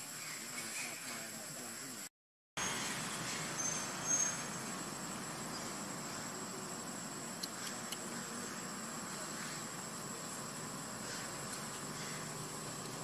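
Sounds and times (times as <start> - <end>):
high insect drone: 0.0 - 13.0
low background hum: 3.0 - 13.0.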